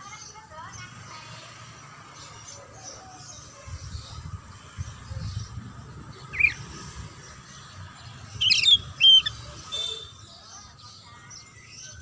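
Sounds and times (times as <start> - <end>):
buzzy bird trill: 6.2 - 6.9, 8.3 - 10.4
bird giving sharp calls: 6.3 - 6.8, 8.4 - 10.1.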